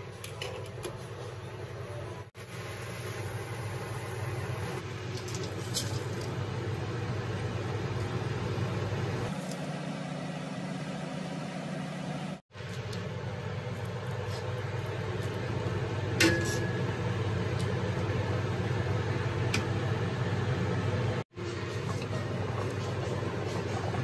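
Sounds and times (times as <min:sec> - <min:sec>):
water boiling and bubbling: 0:02.4 - 0:09.3, 0:17.0 - 0:24.0.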